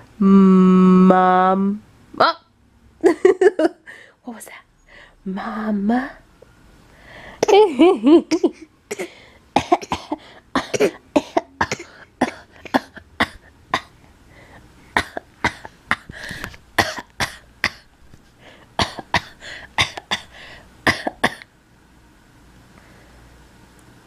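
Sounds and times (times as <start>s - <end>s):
baby coughing: 7.4s - 7.7s, 8.3s - 14.0s, 15.0s - 16.1s, 16.8s - 17.9s, 18.8s - 20.3s, 20.9s - 21.5s.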